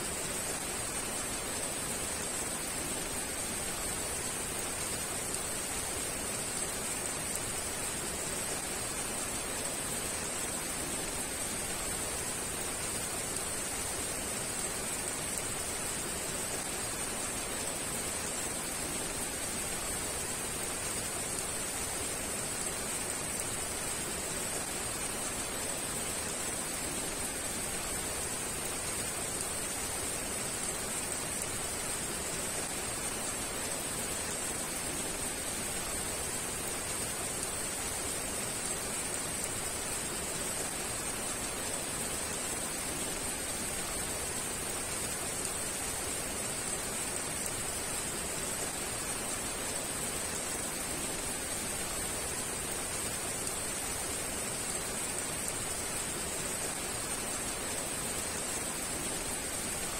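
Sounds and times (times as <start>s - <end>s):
heavy rain falling: 0.0s - 59.9s.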